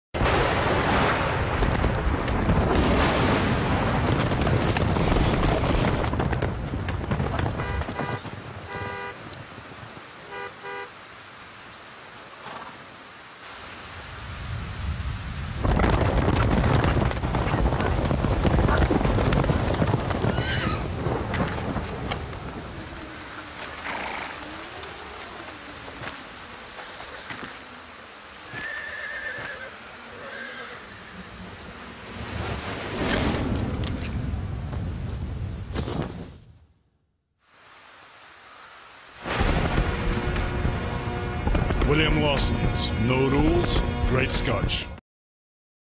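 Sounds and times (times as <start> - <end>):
horn tooting: 7.5 - 9.3, 10.2 - 11.0
rushing noise: 39.0 - 45.0
low rumbling noise: 39.2 - 44.4.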